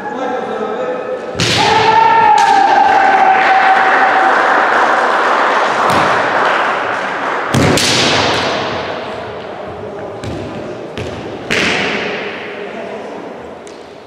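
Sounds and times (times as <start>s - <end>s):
loud shouts: 1.4s - 5.0s.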